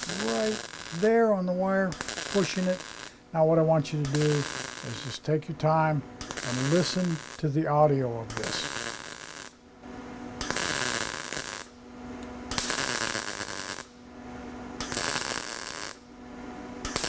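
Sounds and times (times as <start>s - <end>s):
welding arc crackling: 0.0s - 9.6s, 10.4s - 11.8s, 12.5s - 14.0s, 14.8s - 16.1s.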